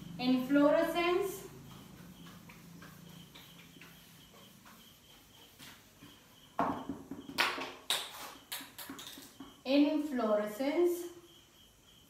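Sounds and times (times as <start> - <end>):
duster rubbing on whiteboard: 0.4 - 6.4.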